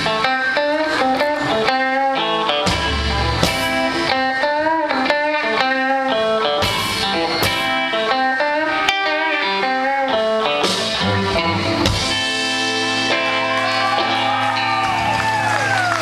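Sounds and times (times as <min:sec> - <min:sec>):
blues-rock band playing: 0:00.0 - 0:16.0
electric guitar with bent notes: 0:00.0 - 0:16.0.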